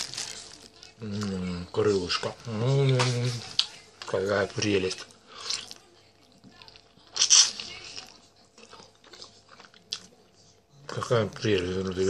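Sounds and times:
chewing and smacking: 2.9 - 12.0
crunch biting chicken wing: 7.2 - 7.8.

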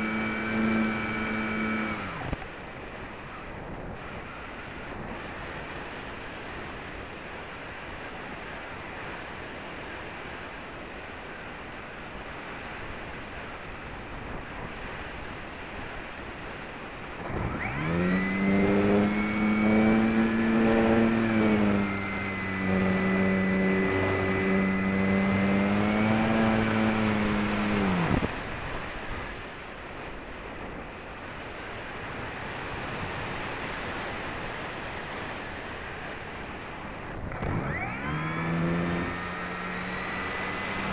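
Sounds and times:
electric motor propeller whine: 0.0 - 7.2, 14.4 - 29.6, 31.4 - 40.9.

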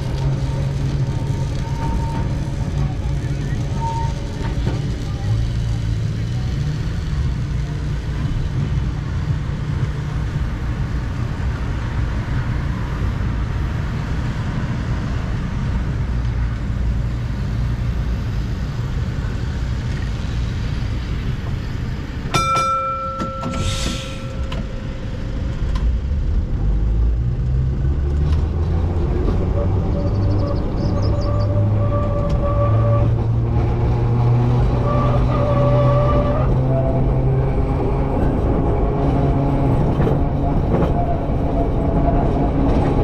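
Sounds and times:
road traffic: 0.0 - 43.0
tram rumbling: 0.0 - 43.0
tram gong strike: 22.3 - 25.8
short hiss: 23.5 - 24.5.

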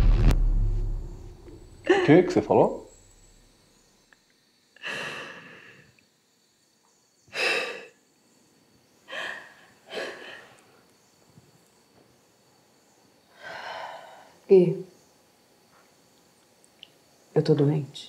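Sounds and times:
person breathing heavily: 4.8 - 6.0.

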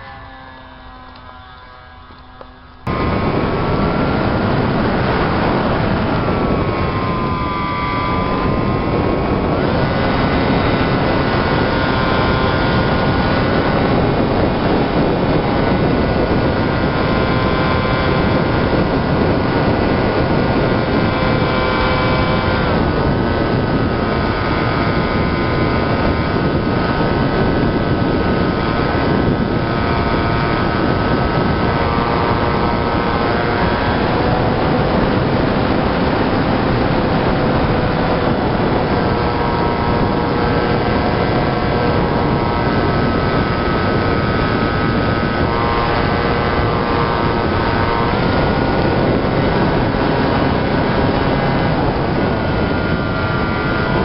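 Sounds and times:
propeller motor whine: 0.0 - 54.0
air rushing over microphone: 2.8 - 54.0.

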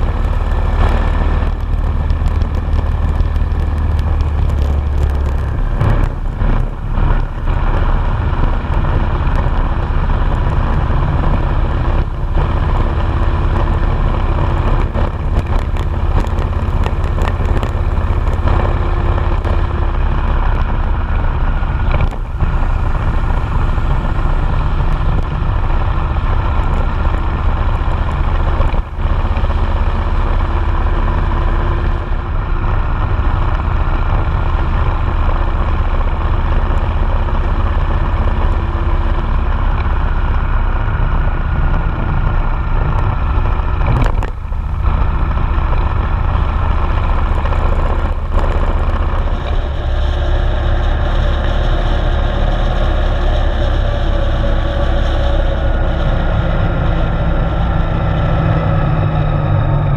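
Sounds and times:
motorcycle engine running: 0.0 - 59.9
wind rumble on microphone: 0.0 - 59.9.

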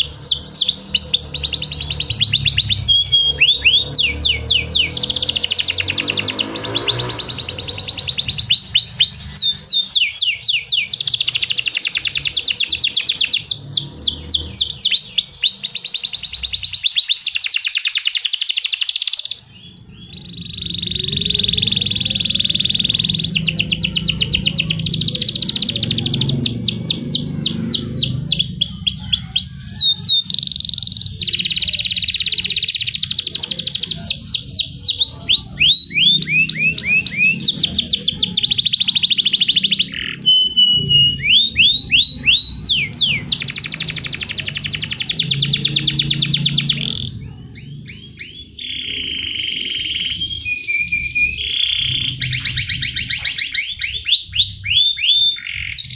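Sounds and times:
canaries trilling: 0.0 - 55.9.

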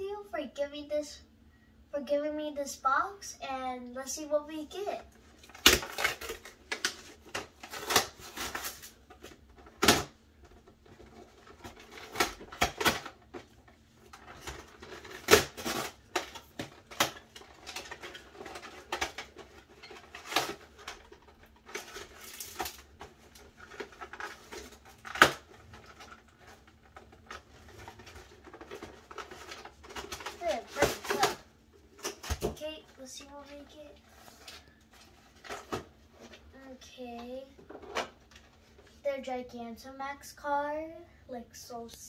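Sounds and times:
cardboard and paper ripping: 5.5 - 9.9, 14.1 - 21.0, 21.6 - 36.4.

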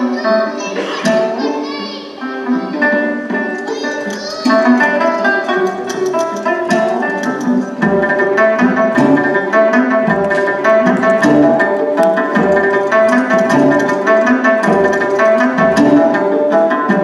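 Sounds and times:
held melodic notes: 0.0 - 17.0
light percussion: 3.2 - 17.0
deep beats: 4.2 - 17.0.

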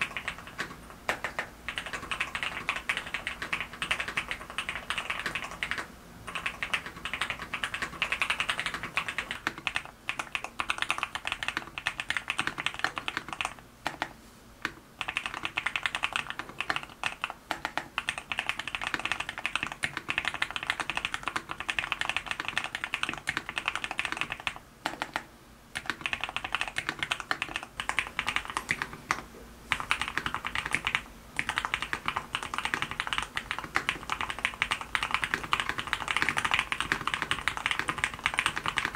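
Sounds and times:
fast typing on keyboard: 0.0 - 38.9.

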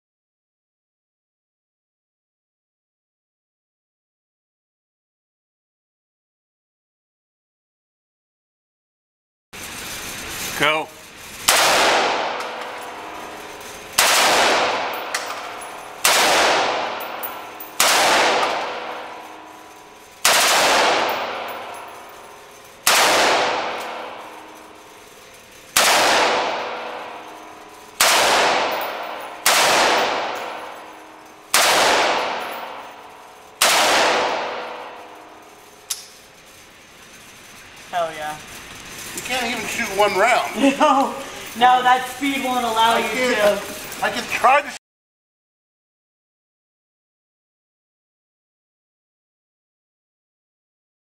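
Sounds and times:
rifle shots echoing indoors: 11.4 - 36.6.

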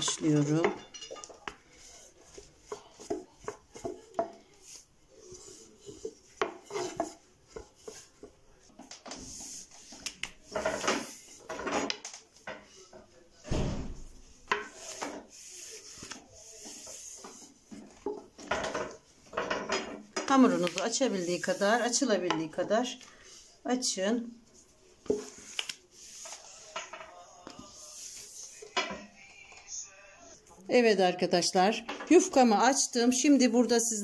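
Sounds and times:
dry rubbing swish of dough: 9.2 - 11.4, 14.6 - 18.0, 20.3 - 22.1.

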